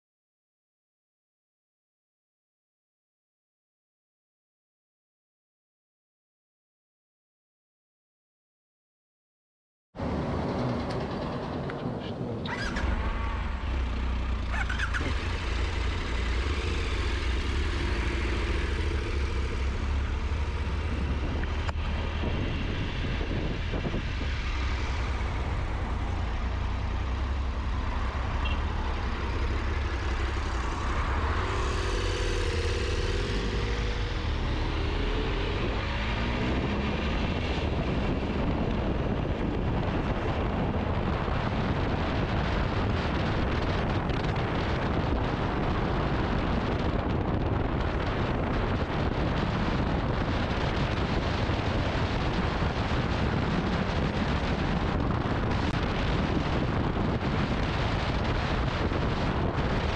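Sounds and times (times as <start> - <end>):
wind rumble on microphone: 10.0 - 59.9
motorcycle engine running: 12.4 - 59.9.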